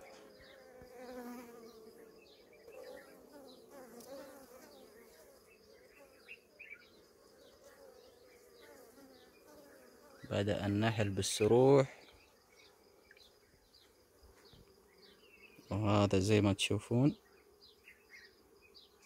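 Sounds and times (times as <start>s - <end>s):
bees buzzing: 0.0s - 11.8s.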